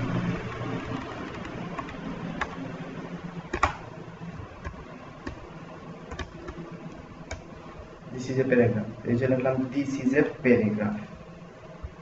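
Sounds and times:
computer keyboard typing: 0.0s - 2.6s, 3.5s - 3.8s, 4.6s - 5.5s, 6.1s - 6.6s
low steady hum: 0.0s - 12.0s.

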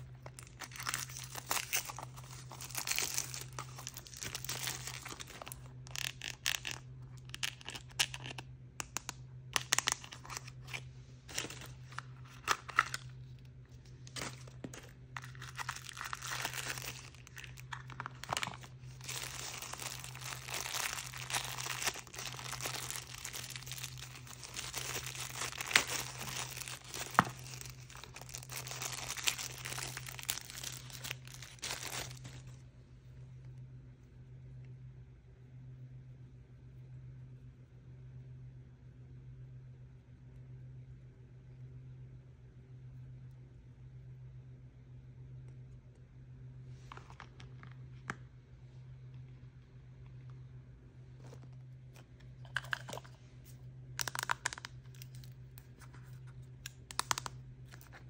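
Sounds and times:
plastic packaging tearing and crinkling: 0.0s - 8.4s, 9.6s - 13.2s, 14.0s - 32.6s, 54.0s - 58.0s
faint low hum: 0.0s - 58.0s.

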